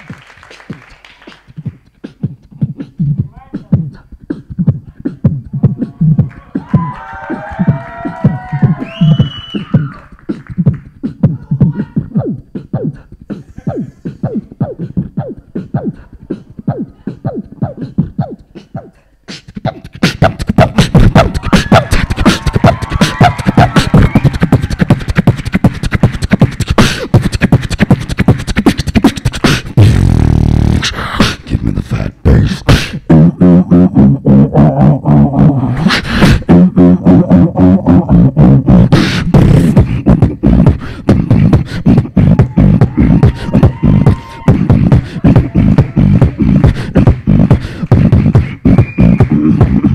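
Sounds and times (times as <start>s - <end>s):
beatboxing into a microphone: 0.0s - 49.9s
held low bass sound: 29.8s - 49.9s.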